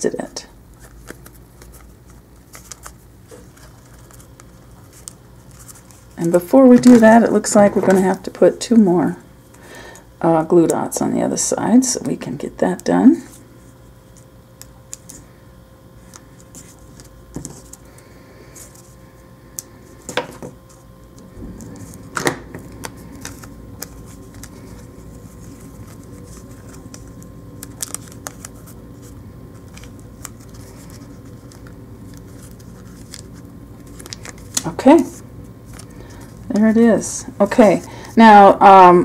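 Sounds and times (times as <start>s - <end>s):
faint steady hum: 0.0s - 39.0s
paper and ribbon rustling: 0.8s - 8.4s, 21.5s - 37.9s.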